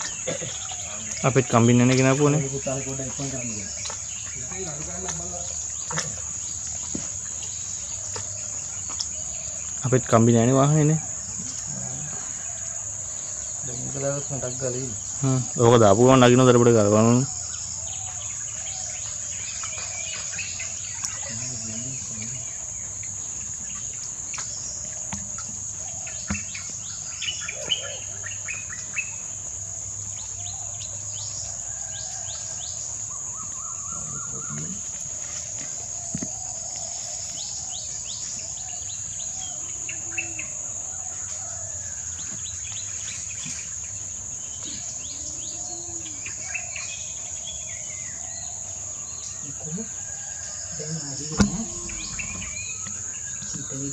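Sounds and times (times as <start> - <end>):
insect drone: 0.0 - 53.9
bird chirps and calls: 26.0 - 29.2, 51.3 - 53.9.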